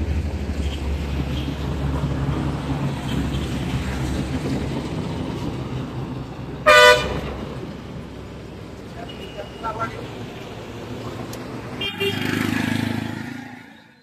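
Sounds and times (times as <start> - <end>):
vehicle horn toot: 6.6 - 7.3, 11.8 - 12.3.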